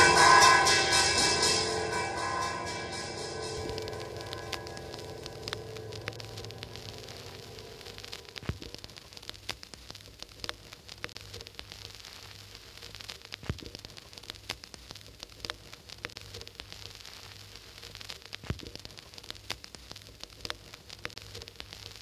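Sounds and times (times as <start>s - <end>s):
low hum: 0.0s - 8.5s
steady hiss: 0.0s - 22.0s.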